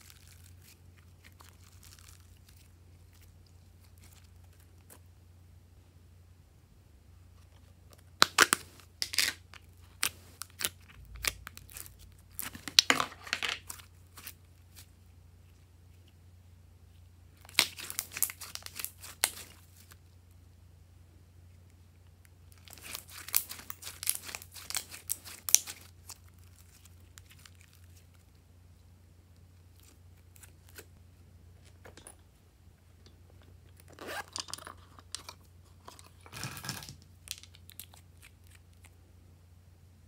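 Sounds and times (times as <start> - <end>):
slime crackling and squelching: 0.0 - 5.0, 8.0 - 12.9, 17.4 - 20.0, 22.4 - 28.4.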